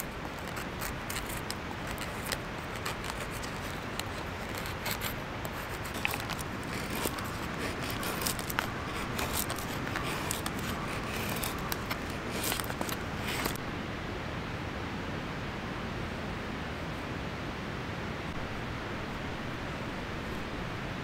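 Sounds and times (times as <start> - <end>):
knife scraping wooden stick: 0.0 - 13.6
steady background hiss: 0.0 - 21.0.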